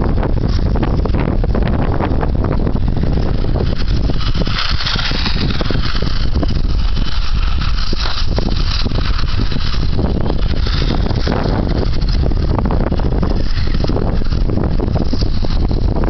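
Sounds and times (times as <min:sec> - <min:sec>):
radio-controlled car motor: 0:00.0 - 0:16.0
wind buffeting microphone: 0:00.0 - 0:16.0
tyres hissing on snow: 0:03.4 - 0:16.0.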